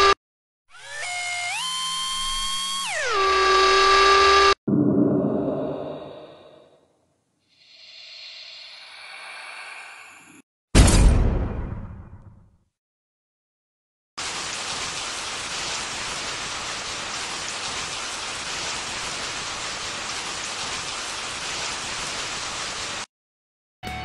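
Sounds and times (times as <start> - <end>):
heavy rain hiss: 14.2 - 23.1.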